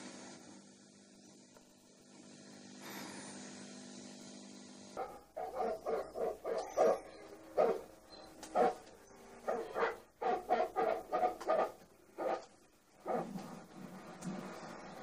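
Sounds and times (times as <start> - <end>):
dog barking: 5.0 - 7.9, 8.5 - 13.4.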